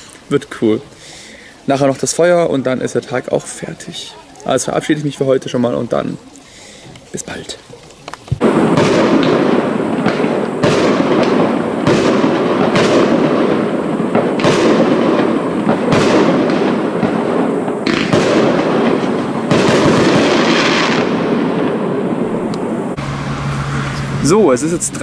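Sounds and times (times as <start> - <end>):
fireworks crackle and rumble: 0.0 - 25.0
firework shells bursting: 6.2 - 24.3.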